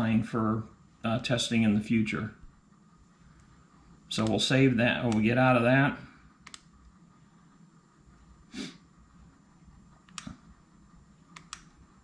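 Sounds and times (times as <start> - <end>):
person sniffing: 8.5 - 8.9.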